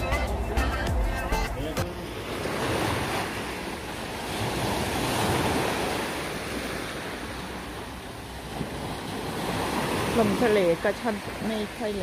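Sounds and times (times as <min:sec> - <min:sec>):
waves washing up pebble beach: 0:02.1 - 0:07.4.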